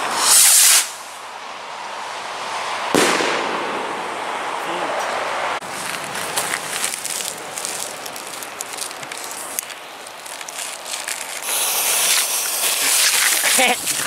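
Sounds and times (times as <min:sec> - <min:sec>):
firework fuse hissing: 0:00.0 - 0:01.2, 0:08.8 - 0:14.0
crunching on gravel: 0:05.6 - 0:14.0.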